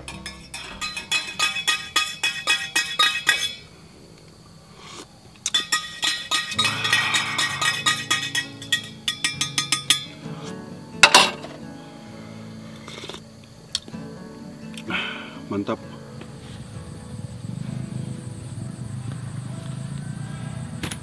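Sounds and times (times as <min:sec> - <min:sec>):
spoon clinking in cup: 0:00.0 - 0:03.6, 0:05.5 - 0:10.2, 0:11.0 - 0:11.5.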